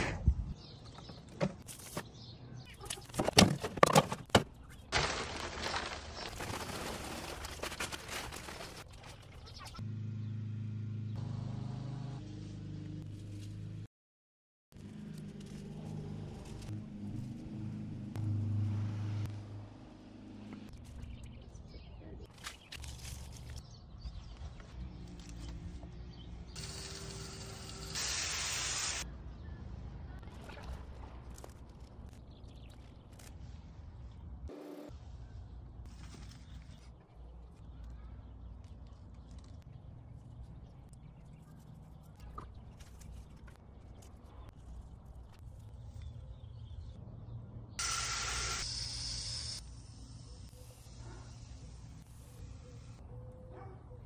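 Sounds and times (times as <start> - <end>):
soil pouring from a bag: 4.9 - 8.9
hose nozzle spraying water: 26.6 - 29.0.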